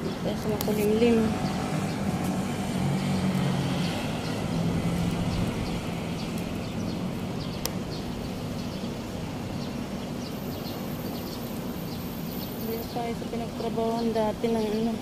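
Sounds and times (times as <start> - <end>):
city street traffic: 0.0 - 15.0
small birds chirping: 0.0 - 15.0.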